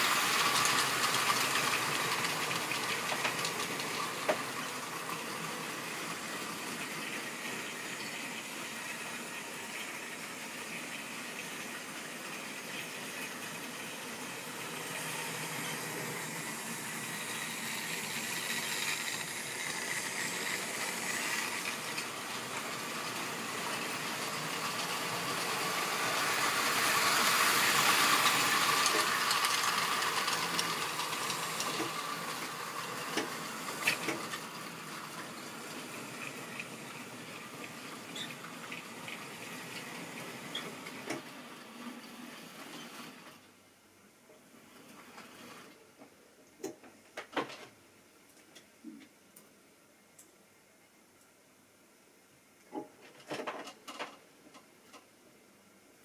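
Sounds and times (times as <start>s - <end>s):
model train motor and wheels whirring: 0.0s - 43.5s.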